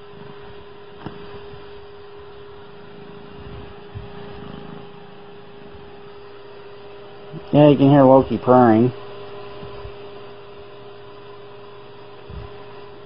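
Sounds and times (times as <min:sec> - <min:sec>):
cat purring: 0:00.0 - 0:07.6
steady electrical hum: 0:00.0 - 0:13.0.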